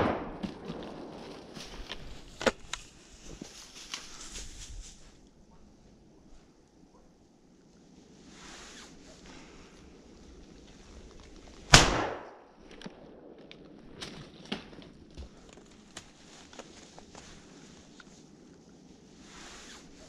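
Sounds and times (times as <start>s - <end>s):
soft rustling: 0.4s - 11.7s, 12.6s - 20.0s
shotgun shot: 11.7s - 12.4s.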